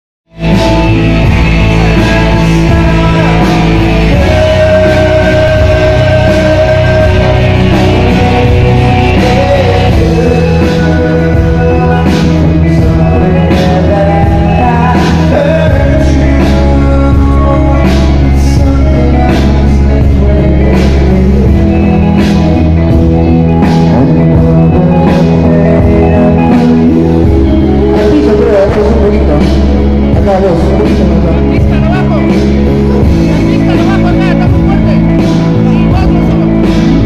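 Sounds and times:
bass notes: 0.3s - 37.0s
rock music: 0.3s - 37.0s
man singing into a microphone: 0.5s - 37.0s.

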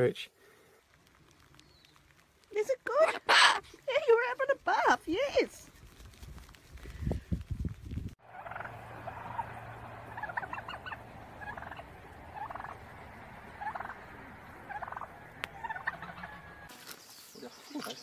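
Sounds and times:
turkey gobbling: 3.0s - 3.6s, 8.2s - 16.7s
wings flapping thumps: 5.5s - 16.2s.

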